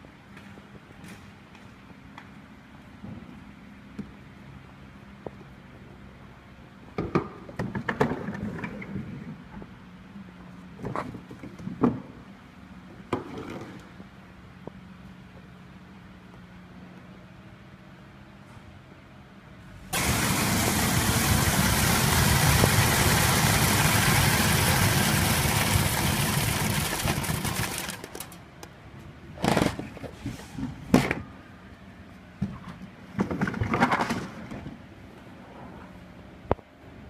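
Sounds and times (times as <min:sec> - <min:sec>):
rush of beans through machine: 0:20.0 - 0:28.4.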